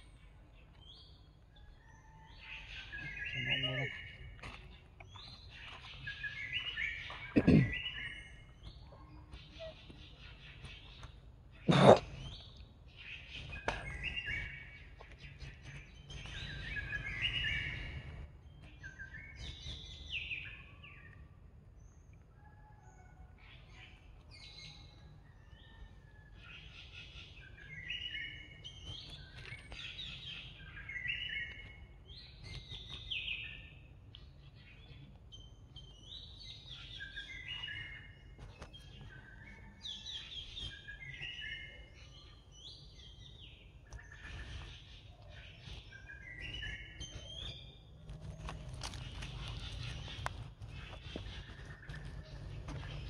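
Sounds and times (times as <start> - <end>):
birds singing: 0.0 - 53.0.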